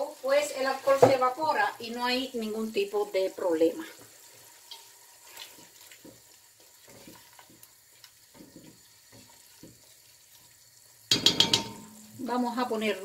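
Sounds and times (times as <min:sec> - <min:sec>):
sauce sizzling: 0:00.0 - 0:13.0
spatula scraping a metal pot: 0:06.8 - 0:10.5.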